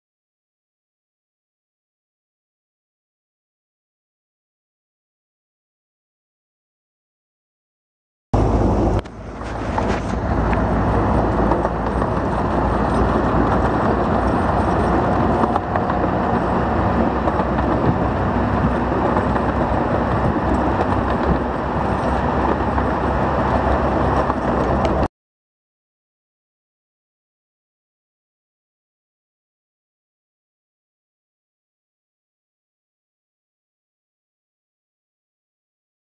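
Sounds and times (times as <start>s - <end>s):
rush of air: 8.4s - 10.8s
train wheels rumbling on rails: 8.4s - 25.1s.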